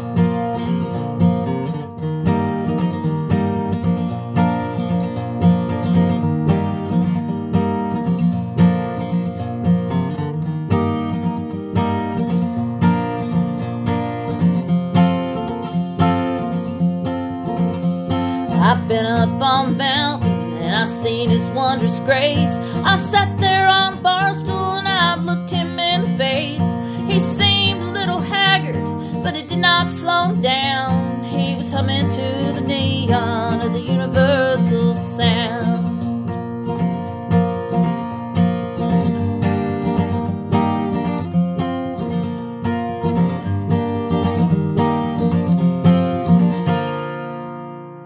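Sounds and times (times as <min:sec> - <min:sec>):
acoustic guitar strumming: 0:00.0 - 0:48.0
woman singing: 0:18.4 - 0:36.1.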